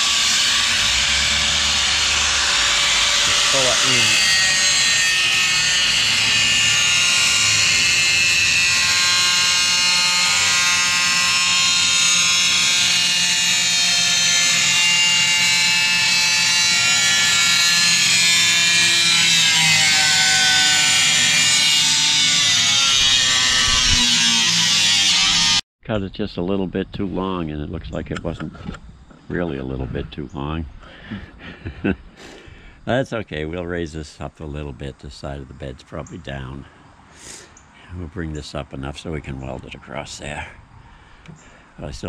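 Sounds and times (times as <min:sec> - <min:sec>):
power tool cutting steel: 0:00.0 - 0:25.6.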